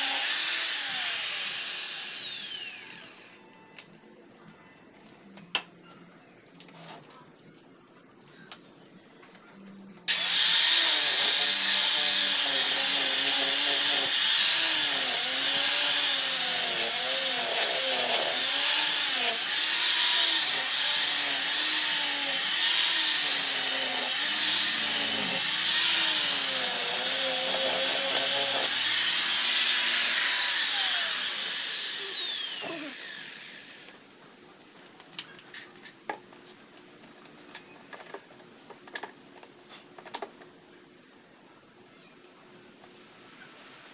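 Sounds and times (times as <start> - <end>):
electric sander whining: 0.0 - 3.4, 10.1 - 34.0.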